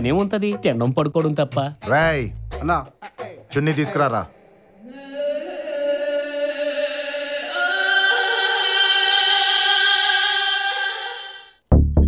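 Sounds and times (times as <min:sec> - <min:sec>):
choir chanting held notes: 0:04.5 - 0:11.6.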